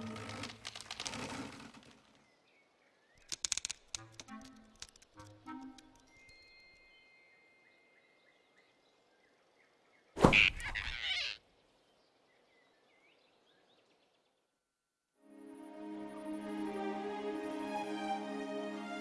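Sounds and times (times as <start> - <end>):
cartoon forest ambience: 0.0 - 6.3, 7.3 - 14.5
soft music: 4.0 - 8.4, 15.2 - 19.0.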